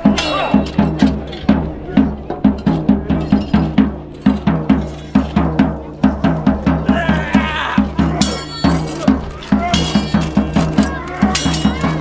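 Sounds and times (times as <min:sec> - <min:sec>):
fast drumming: 0:00.0 - 0:12.0.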